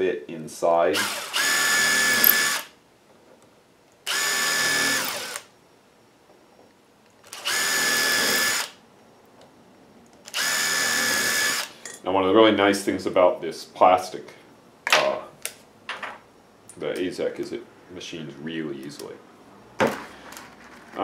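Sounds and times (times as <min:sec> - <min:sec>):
impact driver drilling into plastic: 0:01.0 - 0:02.7, 0:04.1 - 0:05.5, 0:07.3 - 0:08.8, 0:10.3 - 0:11.7.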